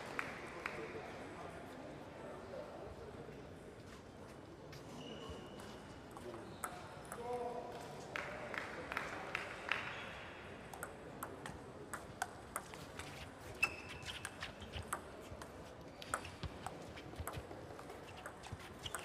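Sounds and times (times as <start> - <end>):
brief high squeak: 4.9 - 5.6, 13.5 - 14.8
table tennis ball tapping: 10.7 - 19.0.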